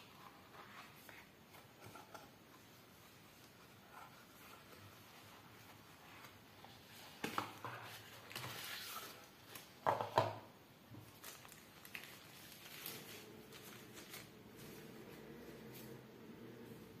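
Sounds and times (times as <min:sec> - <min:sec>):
paper rustling and crinkling: 0:03.4 - 0:09.8, 0:11.0 - 0:16.0.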